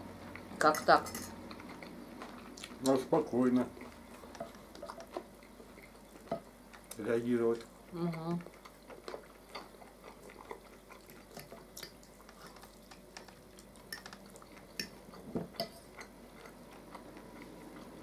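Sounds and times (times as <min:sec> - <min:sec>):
chewing and mouth smacks: 0:01.5 - 0:03.0, 0:03.8 - 0:07.0, 0:08.4 - 0:18.0.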